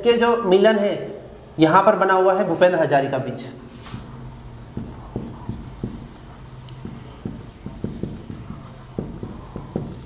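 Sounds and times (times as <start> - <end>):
marker pen writing on whiteboard: 3.9 - 10.0.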